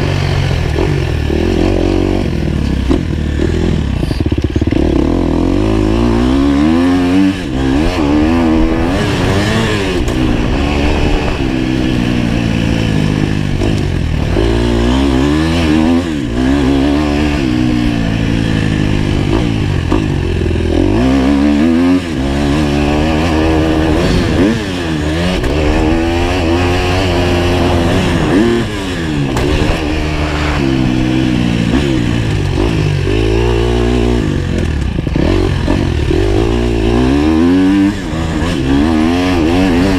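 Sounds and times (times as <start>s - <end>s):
dirt bike engine revving: 0.0s - 39.9s.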